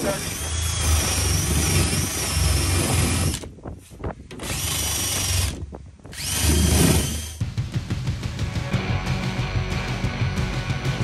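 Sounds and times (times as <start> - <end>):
drill wire brush scouring aluminum: 0.0 - 3.5, 4.3 - 7.4.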